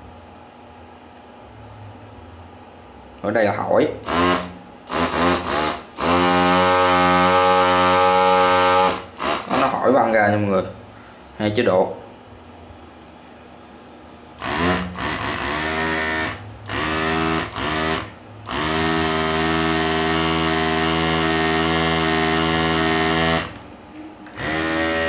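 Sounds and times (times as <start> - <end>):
pump motor spinning up: 4.0 - 9.8, 14.4 - 23.7, 24.3 - 25.0.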